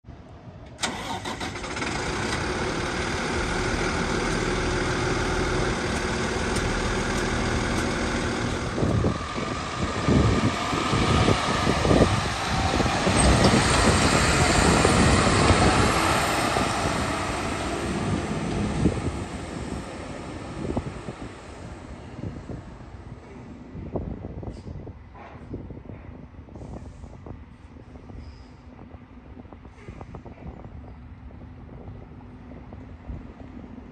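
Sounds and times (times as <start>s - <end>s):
diesel truck engine idling: 0.8s - 23.2s
truck pulling away: 0.8s - 23.8s
wind gusting on microphone: 0.8s - 33.9s.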